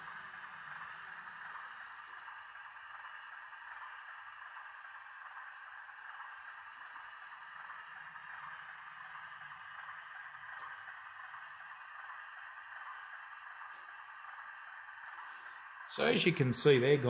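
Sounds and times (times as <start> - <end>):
model locomotive motor noise: 0.0 - 17.0
faint diesel engine sound from speaker: 15.2 - 17.0.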